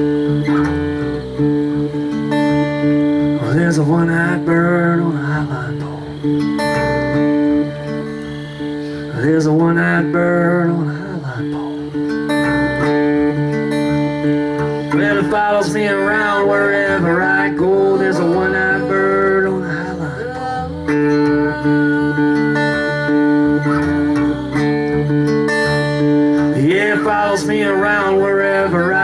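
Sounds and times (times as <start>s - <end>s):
acoustic guitar chords: 0.0s - 29.0s
person singing: 3.4s - 6.2s, 14.6s - 25.2s, 26.4s - 29.0s.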